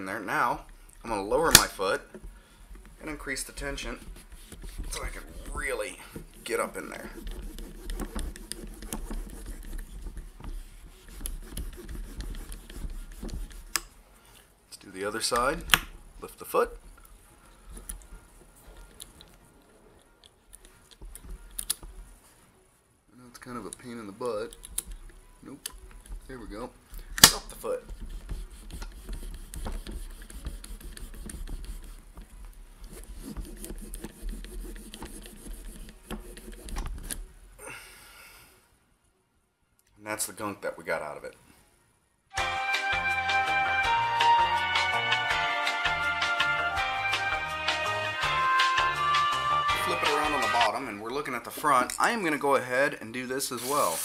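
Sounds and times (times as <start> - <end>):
cloth rubbing and rustling: 2.2 - 14.2, 20.7 - 22.9, 27.6 - 37.4, 53.5 - 54.0.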